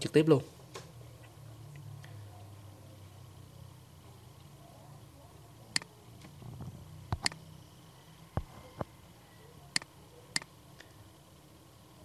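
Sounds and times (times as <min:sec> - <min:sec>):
computer mouse clicking: 0:05.7 - 0:06.4, 0:07.1 - 0:07.4, 0:09.7 - 0:11.0.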